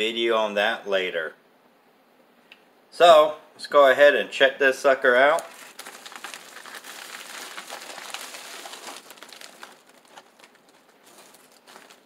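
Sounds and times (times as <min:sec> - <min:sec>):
plastic envelope rustling: 0:05.3 - 0:12.0.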